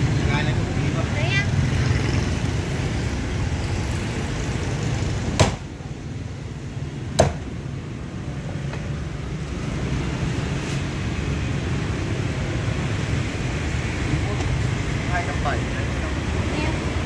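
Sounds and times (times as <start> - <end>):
street traffic rumble: 0.0 - 17.0
cleaver chopping into wooden block: 5.4 - 5.6, 7.2 - 7.5.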